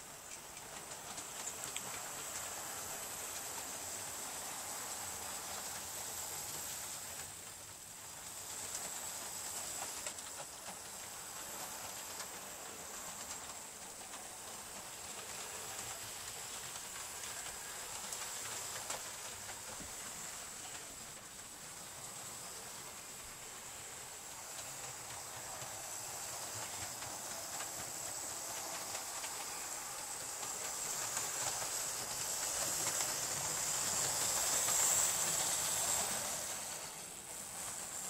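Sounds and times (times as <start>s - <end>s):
model train motor and wheels hissing: 0.0s - 38.0s
faint clicks: 0.3s - 2.5s.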